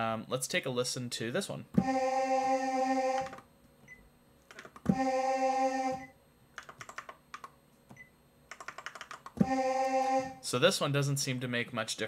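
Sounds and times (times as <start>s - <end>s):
synthesizer choir note: 1.8s - 3.4s, 4.9s - 6.2s, 9.4s - 10.5s
fingers tapping touchscreen: 6.6s - 9.5s.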